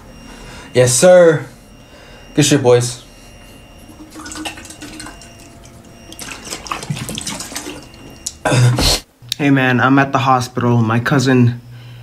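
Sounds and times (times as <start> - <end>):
liquid sloshing in shaker bottle: 3.9 - 8.2.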